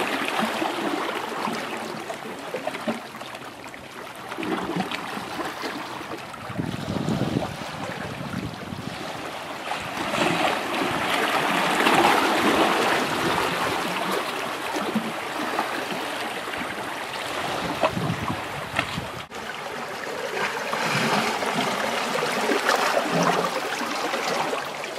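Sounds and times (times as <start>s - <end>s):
sea water splashing on rocks: 4.3s - 24.9s.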